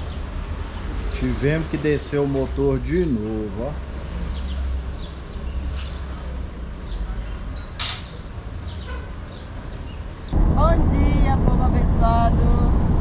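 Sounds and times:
low background rumble: 10.3 - 13.0.

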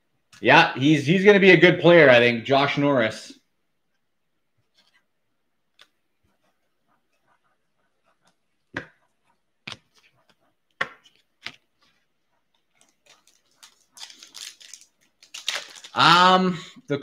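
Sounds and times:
foil wrapper crinkling: 12.8 - 16.2.

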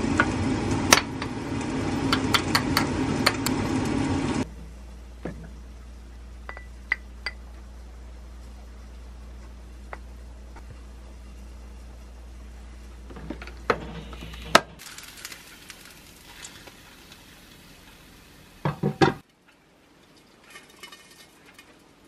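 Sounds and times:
low steady hum: 0.0 - 22.0
dishes knocking down: 18.6 - 19.2.

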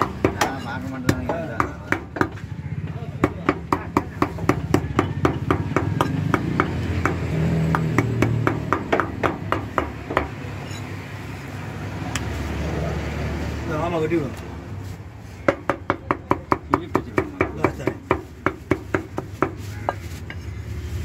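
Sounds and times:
cleaver chopping meat on wood: 0.0 - 2.4, 3.2 - 10.4, 15.5 - 19.6.

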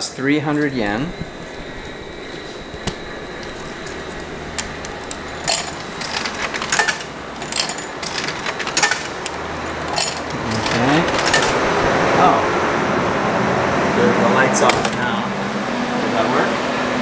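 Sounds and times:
road traffic noise: 0.0 - 17.0
coins clinking in vending machine: 2.9 - 11.8.

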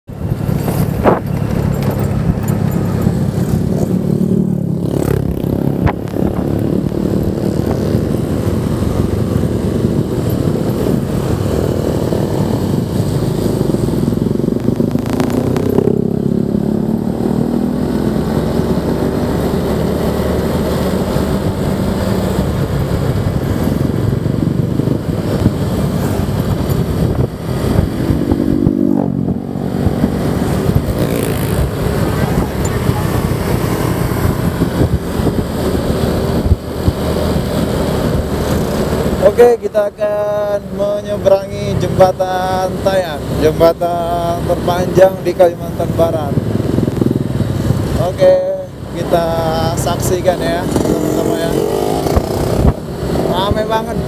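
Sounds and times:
wind rumble on microphone: 0.1 - 54.0
scooter engine running: 0.2 - 39.3.

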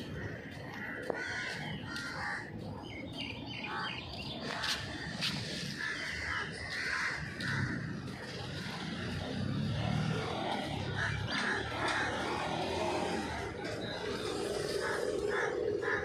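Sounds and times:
crows cawing: 0.0 - 2.6, 4.6 - 8.9, 10.9 - 13.2, 14.8 - 16.0
outdoor background noise: 0.0 - 16.0.

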